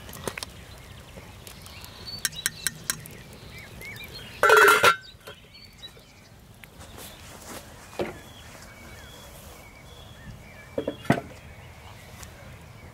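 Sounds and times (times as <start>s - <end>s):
metal pot lid clanging: 4.4s - 5.0s
spoon clinking on metal pot: 4.4s - 5.0s.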